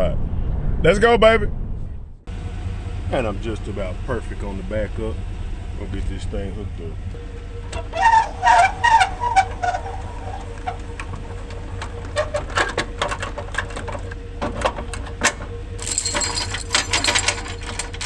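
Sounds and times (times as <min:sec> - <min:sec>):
metal clicks and clanks: 0:07.7 - 0:18.0
safety chains jingling: 0:15.8 - 0:18.0.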